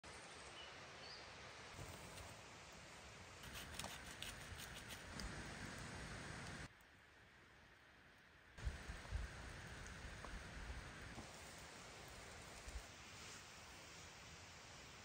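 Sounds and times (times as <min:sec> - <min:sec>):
rain falling in a forest: 0:00.0 - 0:15.0.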